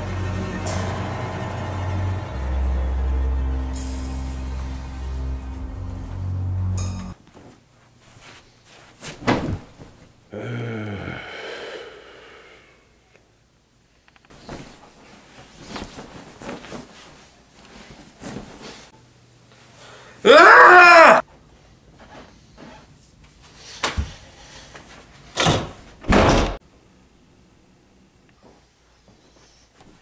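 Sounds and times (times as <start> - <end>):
short low pitched sound: 0.0 - 7.2
wavering pitched tones: 0.0 - 7.2
knocks and rustling: 9.0 - 10.1.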